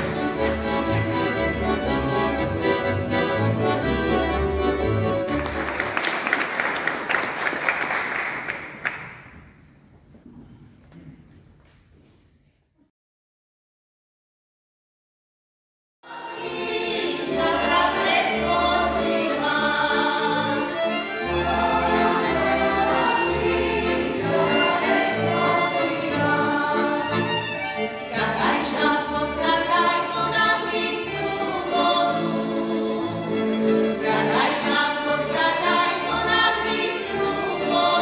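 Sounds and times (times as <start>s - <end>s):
group singing folk song: 0.0s - 5.2s, 16.1s - 38.0s
folk string band: 0.0s - 5.9s, 16.1s - 38.0s.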